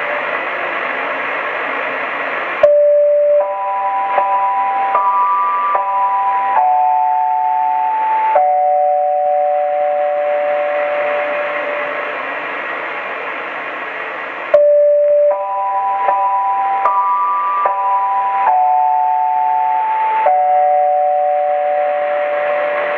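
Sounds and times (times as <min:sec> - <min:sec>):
radio static hiss: 0:00.0 - 0:05.7, 0:09.3 - 0:17.7, 0:21.1 - 0:22.9
electronic tones sequence: 0:02.6 - 0:12.2, 0:14.5 - 0:22.9.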